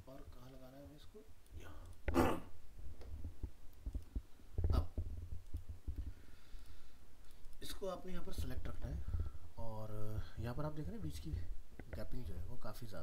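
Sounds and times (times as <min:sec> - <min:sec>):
computer mouse clicking: 0:01.4 - 0:02.2, 0:03.0 - 0:04.4, 0:05.4 - 0:06.2.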